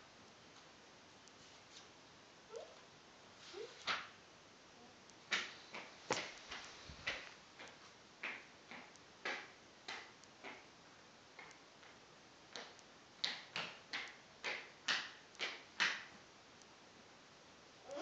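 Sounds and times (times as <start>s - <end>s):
toddler footsteps on hard floor: 5.8s - 7.3s.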